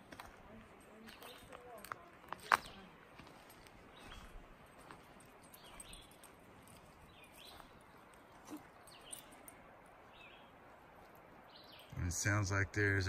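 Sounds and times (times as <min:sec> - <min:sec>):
songbird calling: 0:07.0 - 0:10.6, 0:11.4 - 0:12.5.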